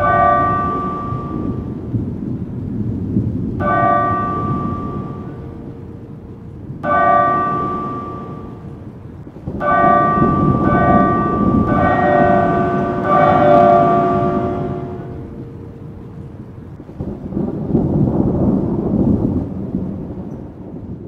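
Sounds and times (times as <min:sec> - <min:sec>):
large bell tolling: 0:00.0 - 0:02.2, 0:03.6 - 0:16.3
low rumbling background: 0:00.0 - 0:20.2.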